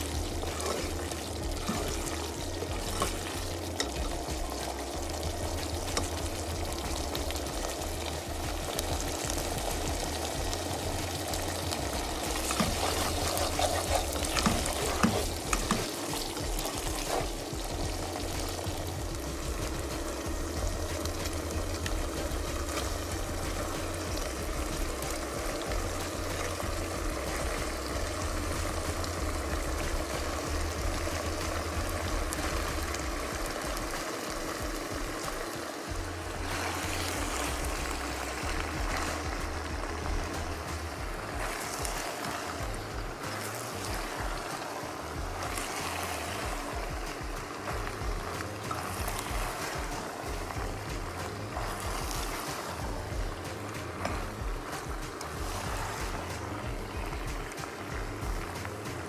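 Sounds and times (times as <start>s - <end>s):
spatula scraping and knocking pan: 0.0s - 33.6s
sauce sizzling in a pan: 0.0s - 59.0s.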